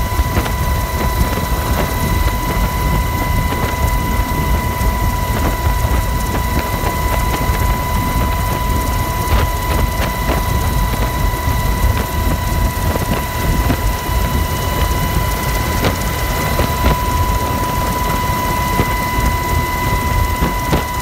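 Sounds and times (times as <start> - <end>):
helicopter rotor and engine rumble: 0.0 - 21.0
high-pitched whine: 0.0 - 21.0
wind noise: 0.0 - 21.0.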